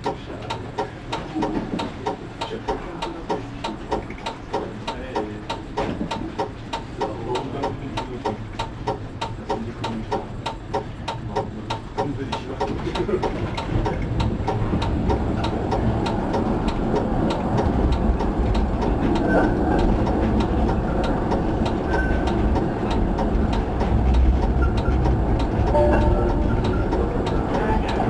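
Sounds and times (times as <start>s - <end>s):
tram wheels rumbling on rail: 0.0s - 28.0s
faint even ticking: 6.4s - 28.0s.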